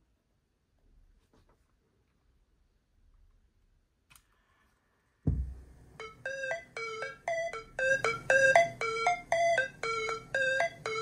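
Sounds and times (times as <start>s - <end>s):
low thump: 5.2s - 5.7s
bouncy synth keyboard music: 5.9s - 11.0s.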